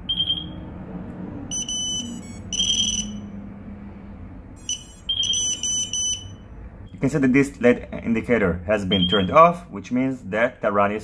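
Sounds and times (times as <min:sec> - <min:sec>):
high electronic beeps: 0:01.5 - 0:03.4, 0:04.6 - 0:06.4, 0:08.9 - 0:09.4.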